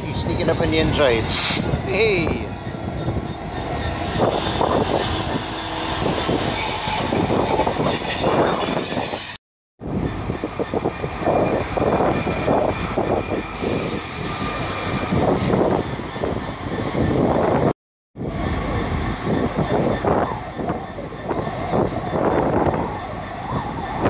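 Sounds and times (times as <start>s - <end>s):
wheels rumbling on rails: 0.0s - 9.2s, 9.8s - 24.0s
diesel locomotive engine: 0.0s - 24.0s
high wheel squeal: 3.0s - 9.4s, 13.6s - 17.2s.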